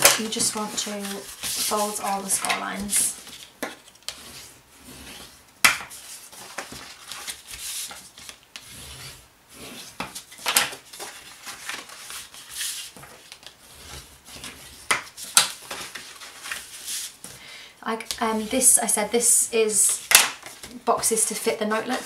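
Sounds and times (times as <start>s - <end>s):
bone folder rubbing on paper: 4.1s - 5.4s, 8.6s - 10.1s.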